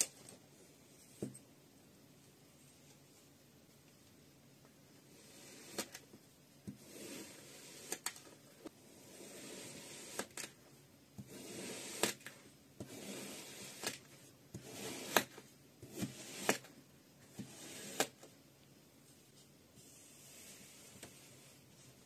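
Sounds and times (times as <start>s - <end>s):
knife scraping through sand: 11.2s - 12.2s, 12.8s - 14.0s, 14.6s - 15.3s.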